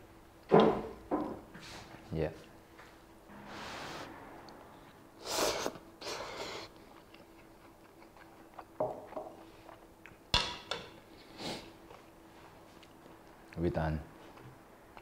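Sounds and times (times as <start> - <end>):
person slurping noodles: 5.2 - 6.8
chewing with mouth clicks: 6.6 - 10.2, 11.2 - 13.6.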